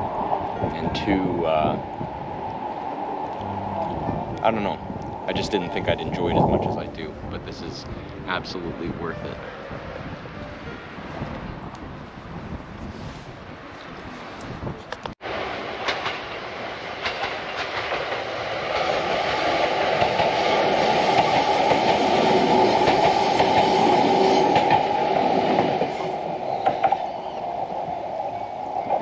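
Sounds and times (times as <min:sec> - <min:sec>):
electric train passing: 0:00.0 - 0:12.6, 0:15.2 - 0:29.0
wheels clacking over rail joints: 0:15.0 - 0:27.2.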